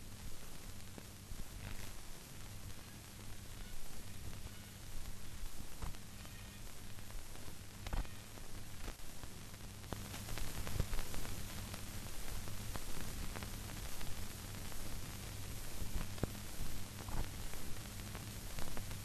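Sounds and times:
low steady hum: 0.0 - 19.0
old film hiss and crackle: 0.0 - 19.0
faint clicks: 5.8 - 9.0.

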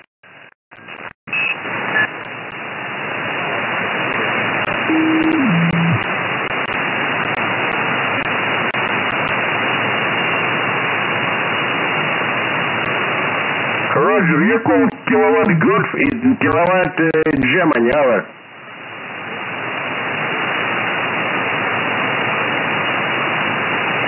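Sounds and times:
radio hiss and static: 0.0 - 18.4.

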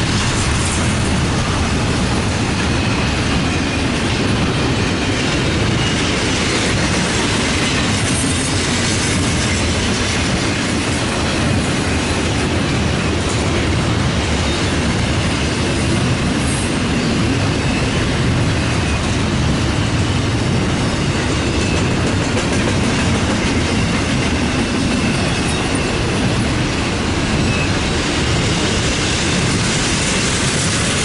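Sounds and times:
steel wheels rumbling on track: 0.0 - 31.0
faint high wheel squeal: 24.6 - 26.4, 27.3 - 27.9.

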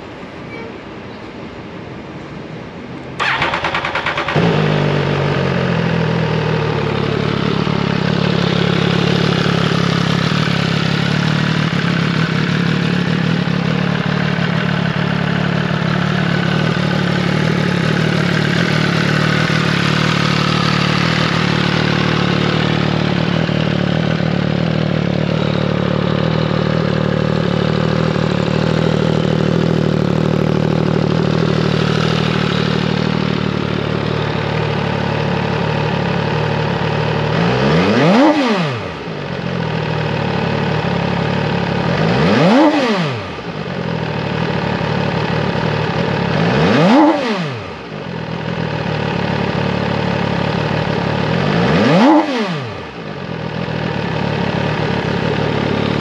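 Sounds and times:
motorcycle engine idling: 3.2 - 56.0.

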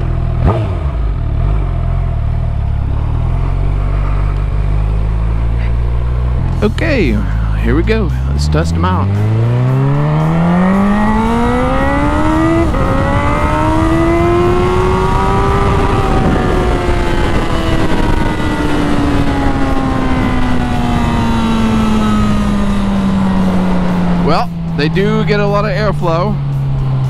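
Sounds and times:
motorcycle engine accelerating: 0.0 - 27.0
wind noise: 6.4 - 24.2.

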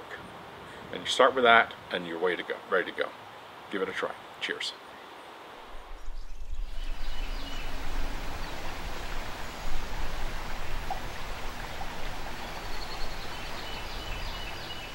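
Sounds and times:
river water rushing: 6.6 - 14.9.

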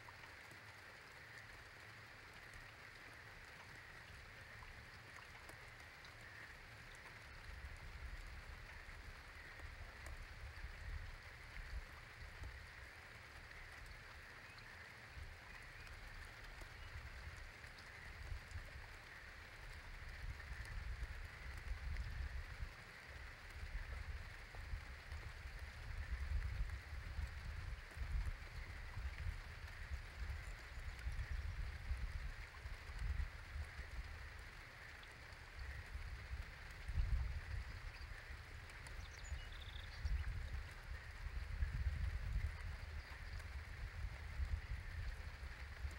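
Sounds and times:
raindrops pattering: 0.0 - 45.9.

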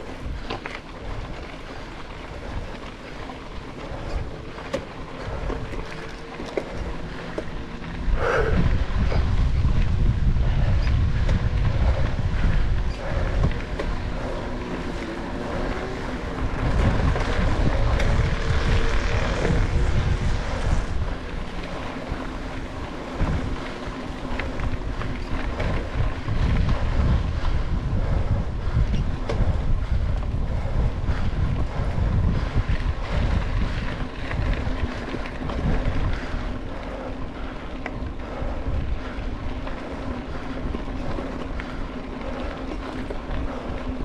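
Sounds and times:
bike rattling: 0.0 - 44.0
wind buffeting microphone: 0.0 - 44.0.

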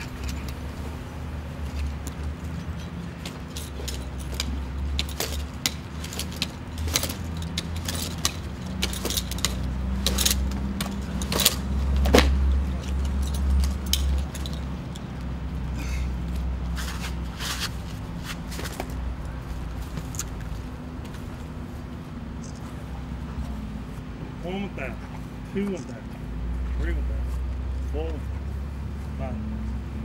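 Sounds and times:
metal climbing gear jangling: 0.0 - 0.9, 1.6 - 15.3
steady low hum: 0.0 - 30.0.

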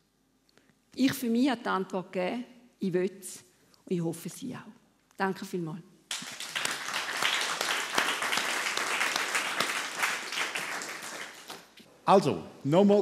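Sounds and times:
audience applauding: 6.1 - 11.8.

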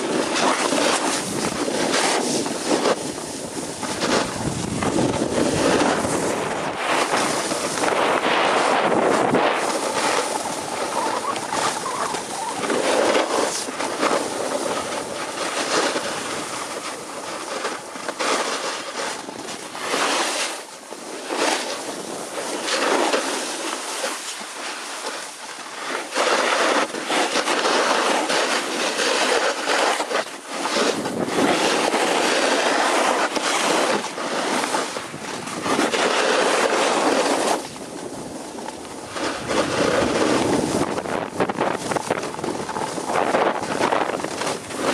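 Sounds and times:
wind buffeting microphone: 0.0 - 17.9, 33.6 - 44.9
skis scraping on packed snow: 0.0 - 44.9.

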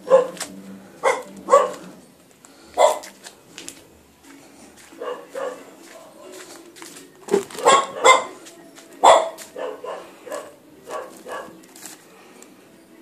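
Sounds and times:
dog barking: 0.0 - 2.0, 2.8 - 3.2, 5.0 - 6.1, 7.5 - 8.4, 9.0 - 11.6.

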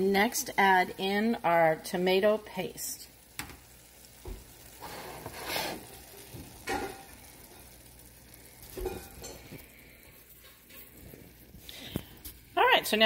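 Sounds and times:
meat sizzling: 0.0 - 13.0
wooden spoon scraping a pot: 4.8 - 6.6.

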